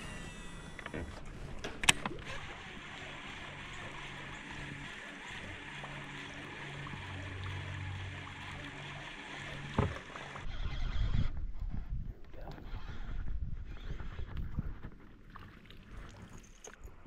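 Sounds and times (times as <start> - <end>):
boat engine hum: 0.0 - 11.2
water noise: 0.0 - 17.0.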